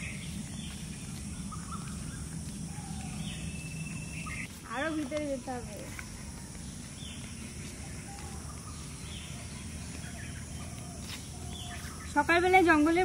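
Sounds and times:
faint bird calls: 0:00.0 - 0:05.0.

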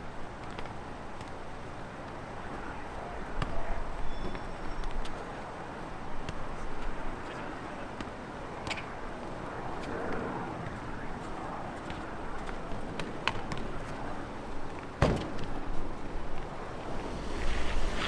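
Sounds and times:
outdoor background noise: 0:00.0 - 0:18.0
ball thump: 0:15.0 - 0:15.5.

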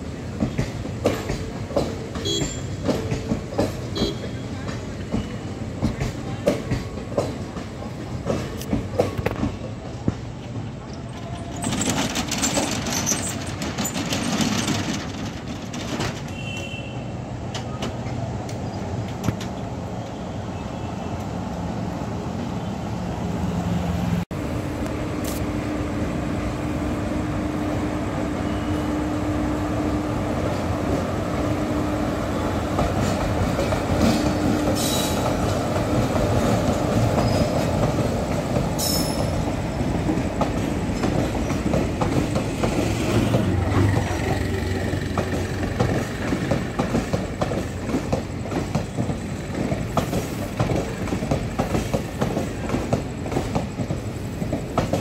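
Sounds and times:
train wheels rumbling and clattering: 0:00.0 - 0:20.2, 0:26.0 - 0:55.0.

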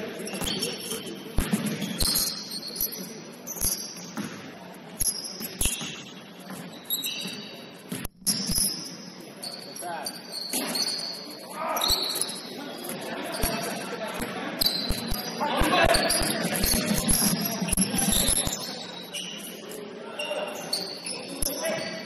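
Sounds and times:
sneakers squeaking: 0:00.0 - 0:22.0
basketball bouncing: 0:00.3 - 0:02.3, 0:03.6 - 0:04.5, 0:05.3 - 0:08.7.

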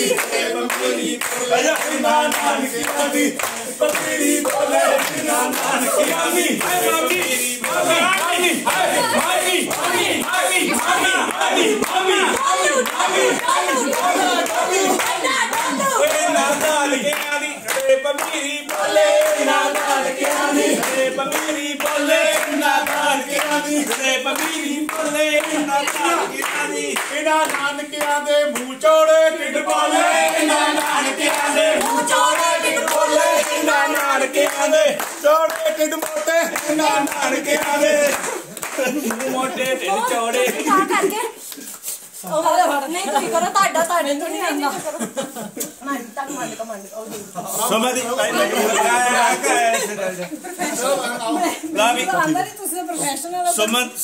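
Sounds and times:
group of people singing: 0:00.0 - 0:41.3, 0:47.4 - 0:50.0
people clapping along: 0:00.0 - 0:42.1.

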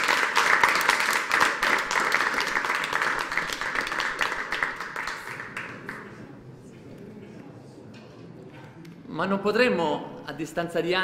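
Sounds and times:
students clapping: 0:00.0 - 0:06.2.

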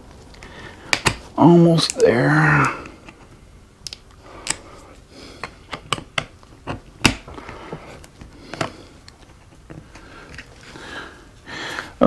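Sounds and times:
plastic parts clicking and snapping: 0:03.8 - 0:04.6, 0:05.4 - 0:07.3.

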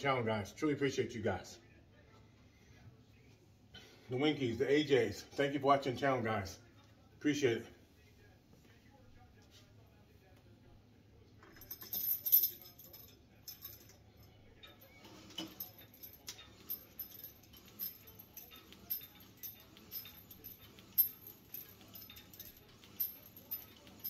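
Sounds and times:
metal chain jangling: 0:11.4 - 0:24.0
short metal clinks: 0:14.6 - 0:24.0.

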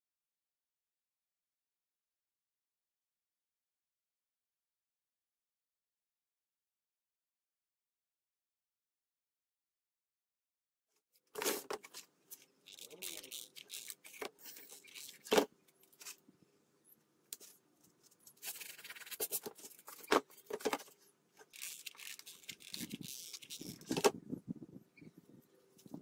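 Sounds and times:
cardboard rustling and scraping: 0:11.4 - 0:16.2, 0:17.4 - 0:24.2.

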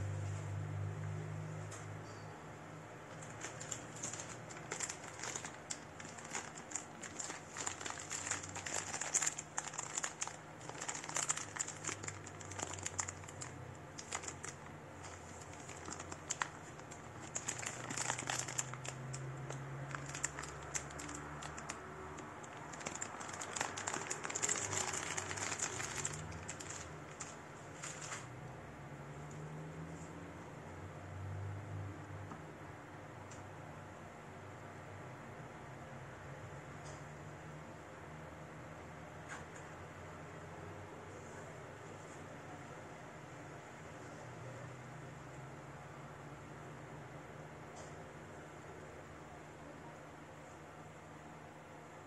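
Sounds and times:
plastic packaging crinkling: 0:03.1 - 0:28.3.

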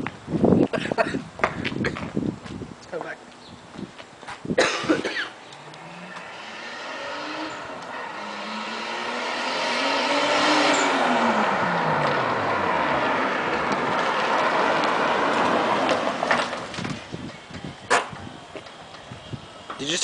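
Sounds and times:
car engine driven hard: 0:05.6 - 0:17.4.

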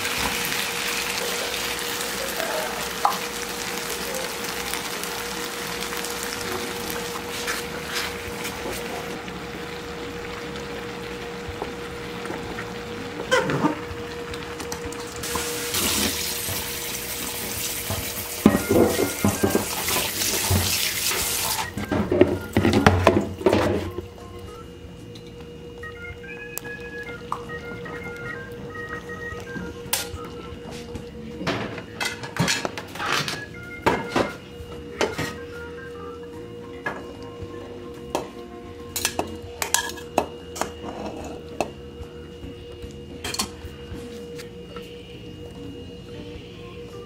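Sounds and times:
cooking hiss on stove: 0:00.0 - 0:22.9.

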